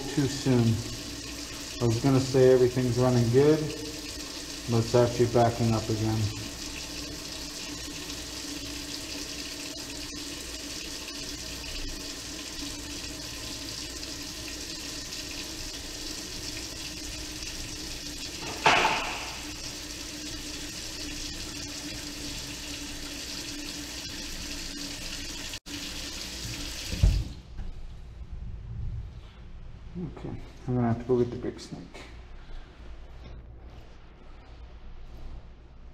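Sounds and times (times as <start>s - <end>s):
faucet running into sink: 0.0s - 27.3s
sharp knock: 18.5s - 19.4s.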